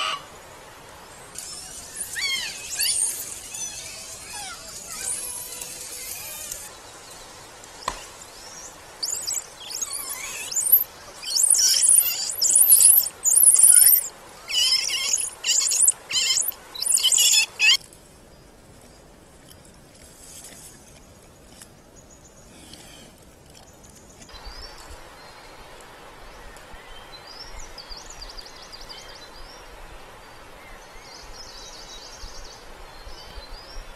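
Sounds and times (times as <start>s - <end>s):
faint forest background: 0.0s - 33.9s
monkeys giving high-pitched calls: 1.4s - 6.7s, 9.0s - 17.8s.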